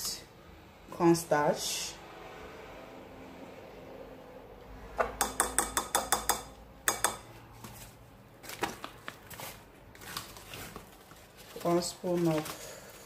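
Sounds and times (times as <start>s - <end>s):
spoon clicking against glass bowl: 5.2s - 7.2s.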